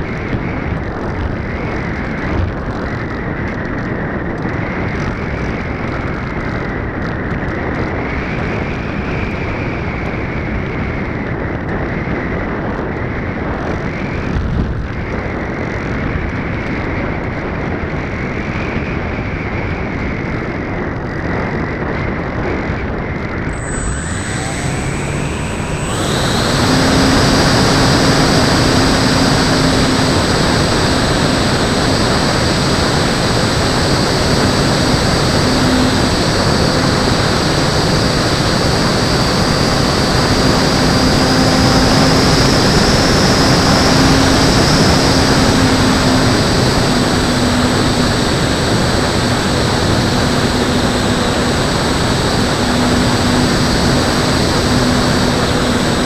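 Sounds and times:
model plane motor whine: 19.4 - 56.0.

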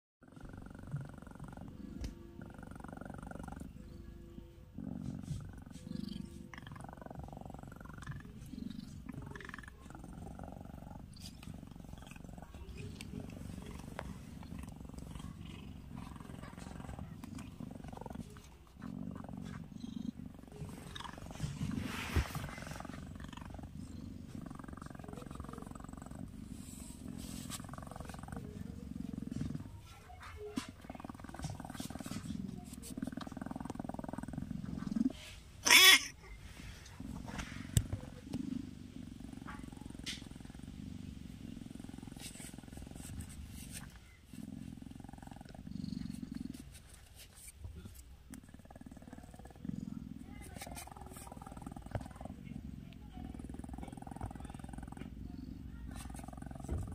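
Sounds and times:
cat purring: 0.2 - 56.9
rustling: 10.8 - 35.6, 36.3 - 48.2.

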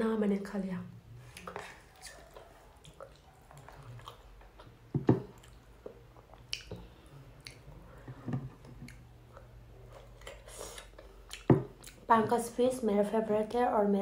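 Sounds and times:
chewing and wet smacking: 1.2 - 7.8, 8.7 - 12.1
sharp mouth clicks: 6.4 - 7.6.

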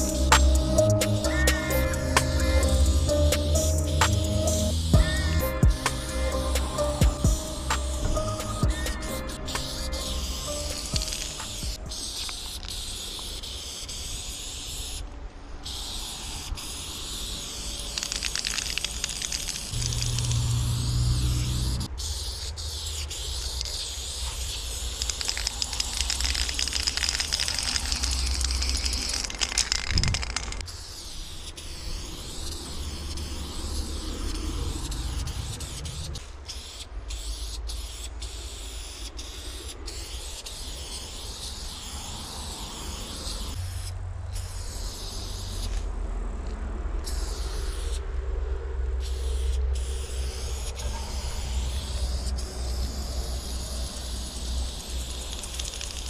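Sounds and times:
steady low rumble: 0.0 - 12.2, 19.6 - 22.4, 43.5 - 55.5
spray paint can hissing: 0.0 - 48.1, 48.9 - 56.0.

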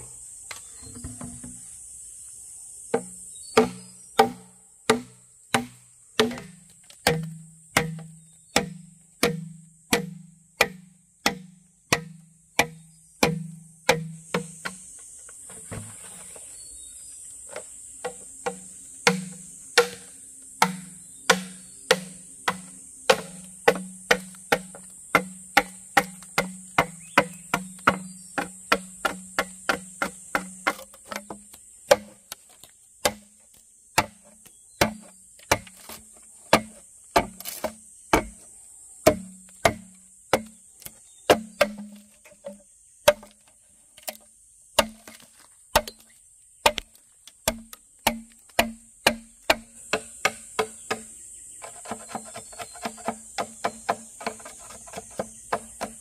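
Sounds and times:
insects droning: 0.0 - 56.0
chopping on wood: 3.0 - 14.8, 17.5 - 33.3, 34.0 - 38.4, 39.0 - 43.4, 44.8 - 56.0.

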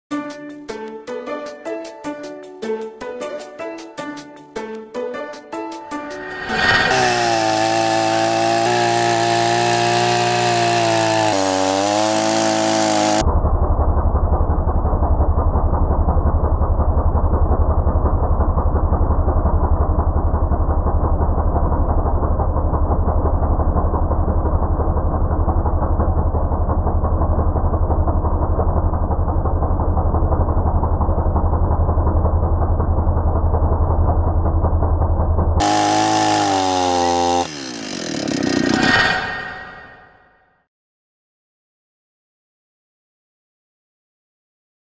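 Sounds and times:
music: 0.1 - 7.2
chainsaw cutting through log: 6.2 - 13.2, 35.6 - 40.0.

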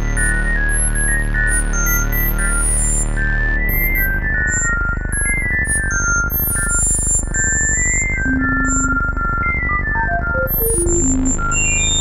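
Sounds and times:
sine-wave beeps: 0.0 - 12.0
low electronic backing: 8.2 - 9.4.

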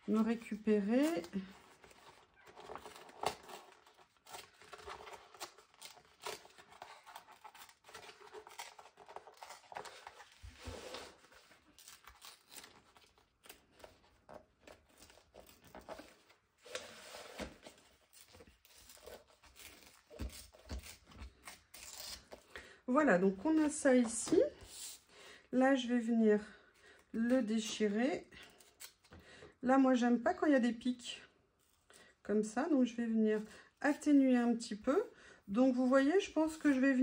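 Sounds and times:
paper crinkling and rustling: 0.4 - 22.5
paper tearing: 2.1 - 13.9, 14.8 - 22.4.

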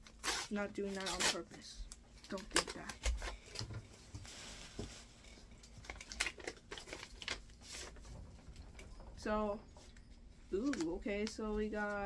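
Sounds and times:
paper rustling and crinkling: 2.2 - 8.2, 10.6 - 12.0.

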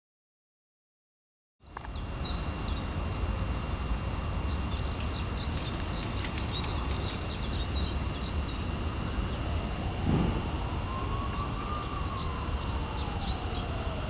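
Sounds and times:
small birds chirping: 1.6 - 3.6, 4.2 - 9.5, 10.9 - 14.0
steady low rumble: 1.7 - 14.0.

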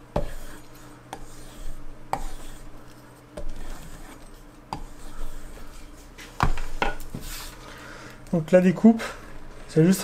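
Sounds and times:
knife rasping over leather: 0.2 - 2.8, 3.4 - 5.8.

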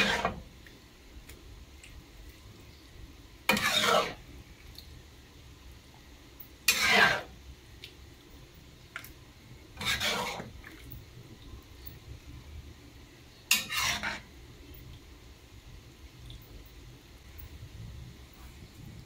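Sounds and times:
spatula scraping a pan: 0.0 - 0.5, 3.5 - 4.3, 6.6 - 7.4, 9.7 - 10.6, 13.4 - 14.4.

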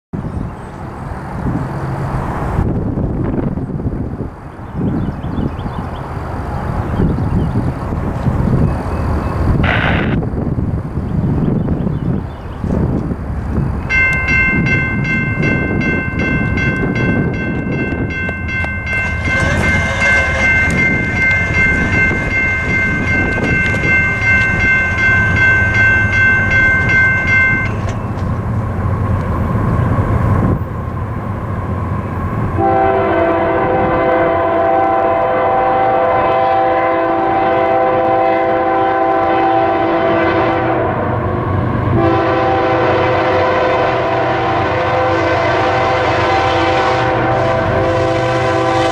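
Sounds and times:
electronic crossing bell ringing: 13.9 - 28.2.

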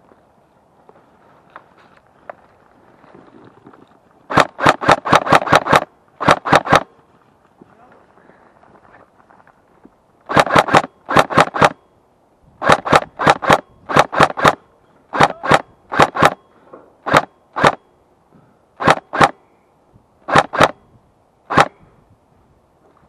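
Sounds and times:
airsoft rifle shots: 4.3 - 7.0, 10.3 - 11.9, 12.6 - 17.9, 18.8 - 19.4, 20.2 - 20.9, 21.5 - 21.8.

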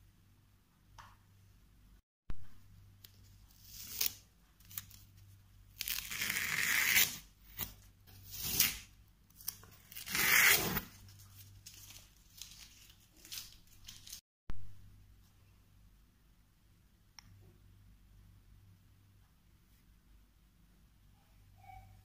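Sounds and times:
masking tape ripping off paper: 5.8 - 11.0.

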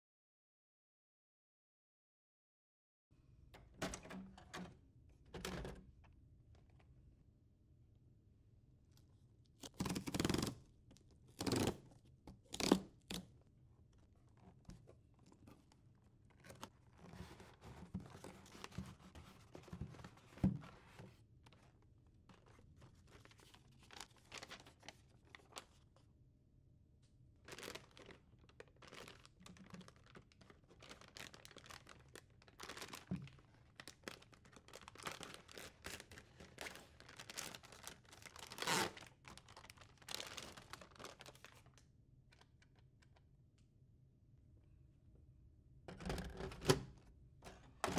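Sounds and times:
cardboard inserts rustling: 27.5 - 41.7
foil bag crinkling and tearing: 27.5 - 41.8.

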